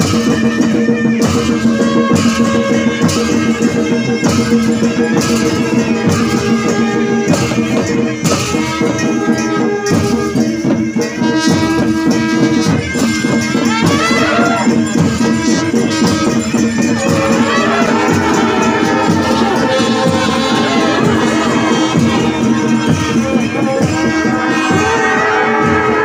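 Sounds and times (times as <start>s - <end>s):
drum strokes: 0.0s - 26.0s
jingling rattling percussion: 0.0s - 26.0s
long brass horns: 11.2s - 26.0s.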